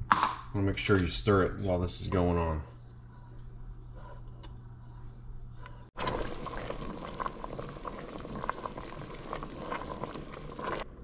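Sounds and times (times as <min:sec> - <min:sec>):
wooden spoon stirring pot: 0:02.8 - 0:11.0
soup bubbling in a pot: 0:06.0 - 0:11.0.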